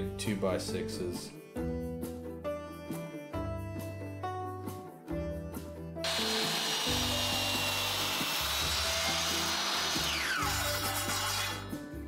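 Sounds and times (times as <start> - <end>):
miter saw cutting wood with high whine: 6.0 - 11.6.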